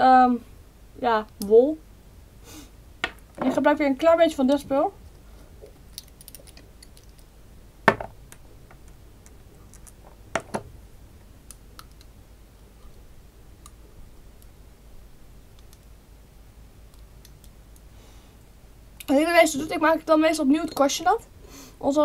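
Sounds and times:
bottle knocking on tabletop: 7.9s - 8.2s.

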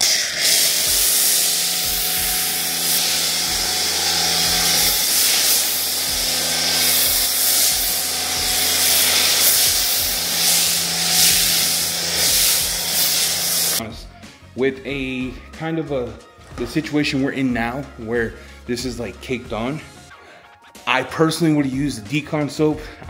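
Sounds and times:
foam spray hissing: 0.0s - 13.8s
pressure washer humming: 0.0s - 13.8s.

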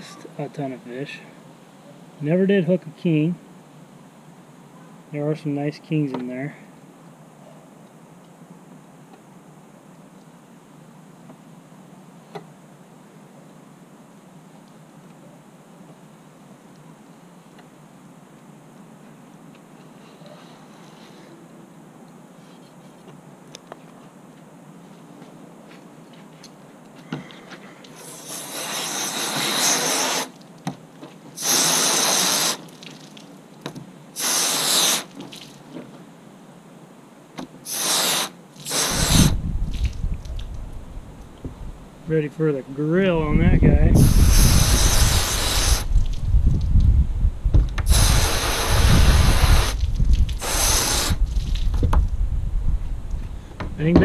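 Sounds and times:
hose nozzle spraying water: 27.9s - 30.4s, 31.4s - 33.3s, 34.2s - 35.6s, 37.6s - 40.6s, 44.0s - 46.7s, 47.7s - 51.8s
low rumble: 39.3s - 42.1s.

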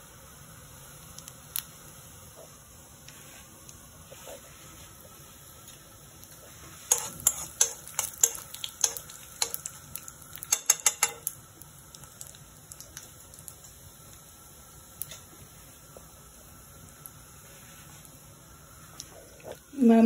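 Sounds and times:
spices sizzling in hot oil: 0.0s - 20.0s
spoon scraping metal pan: 6.8s - 9.6s.

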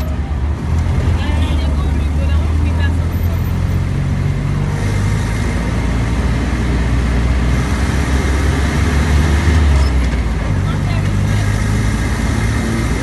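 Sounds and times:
car engine drone from inside cabin: 0.0s - 13.0s
road hiss: 4.5s - 10.0s, 10.9s - 13.0s.

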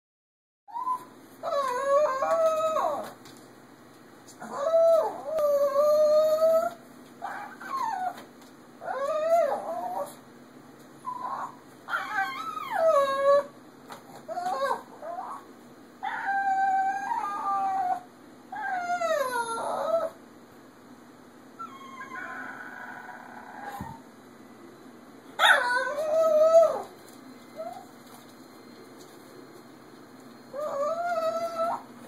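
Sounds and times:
dog whining and howling: 0.7s - 3.2s, 4.4s - 10.2s, 11.0s - 13.6s, 14.2s - 20.2s, 21.6s - 24.1s, 25.4s - 27.9s, 30.4s - 32.0s.

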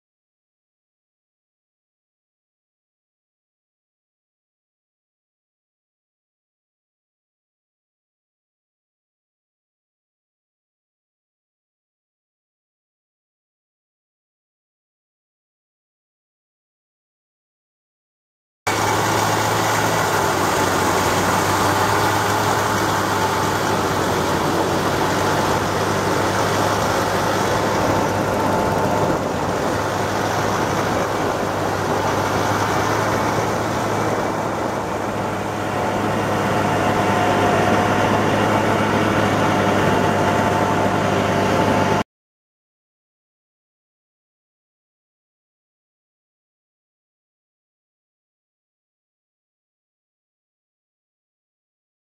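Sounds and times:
snowmobile two-stroke engine running: 18.7s - 42.0s.

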